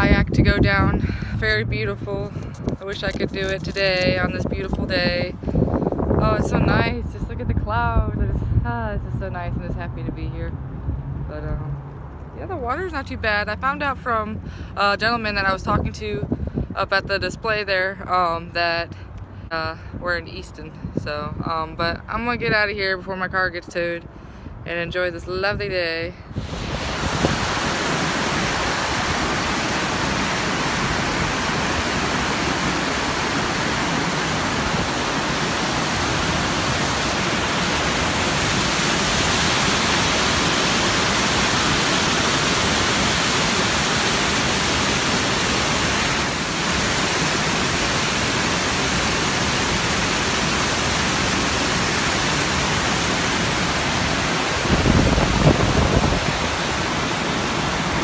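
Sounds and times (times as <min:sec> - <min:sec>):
river water rushing over dam: 0:26.3 - 0:58.0.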